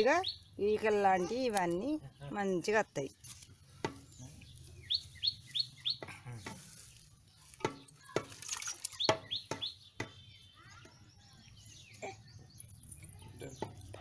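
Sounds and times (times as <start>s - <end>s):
small bird chirping: 0.0s - 14.0s.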